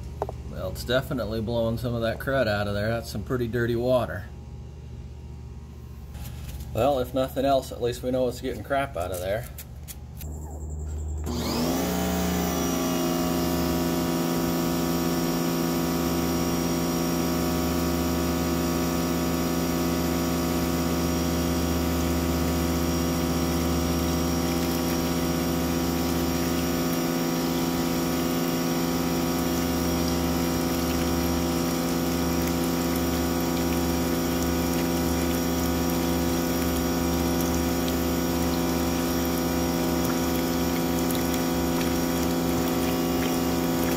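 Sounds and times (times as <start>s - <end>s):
electric pressure washer running: 11.2s - 43.9s
water splashing into plastic tub: 20.5s - 43.9s.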